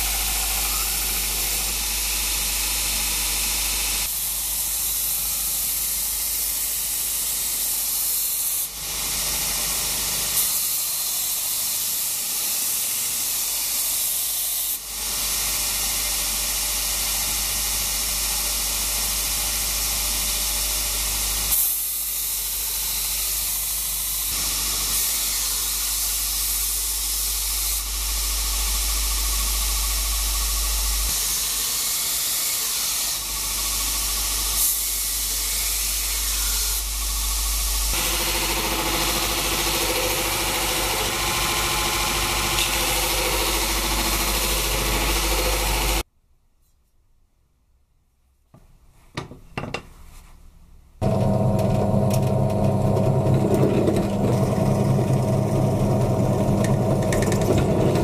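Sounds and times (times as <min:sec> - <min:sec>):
grinder belt hissing on steel: 0:00.0 - 0:46.0
motor low hum: 0:51.0 - 0:58.0.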